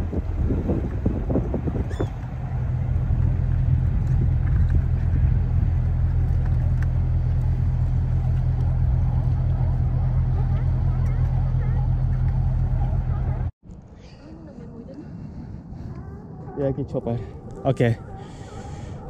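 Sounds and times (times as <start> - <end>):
boat diesel engine droning: 0.0 - 13.5.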